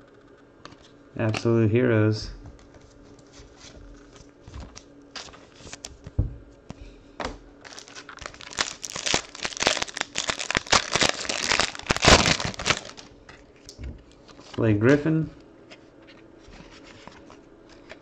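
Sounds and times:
plastic wrapper crinkling: 4.2 - 6.0, 7.6 - 13.4.

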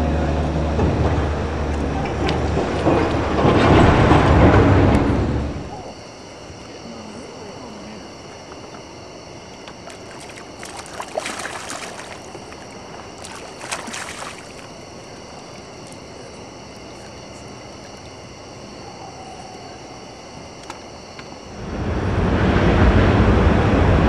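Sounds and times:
fish splashing in water: 9.8 - 18.0.

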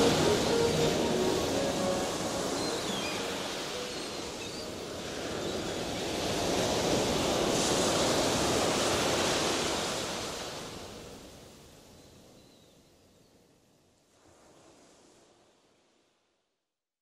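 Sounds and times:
sea waves washing: 0.0 - 11.2.

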